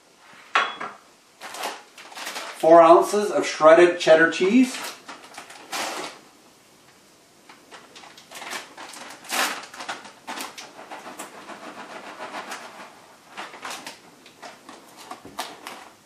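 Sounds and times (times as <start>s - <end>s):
plastic bag crinkling: 1.4s - 3.1s, 4.5s - 6.2s, 7.5s - 16.0s.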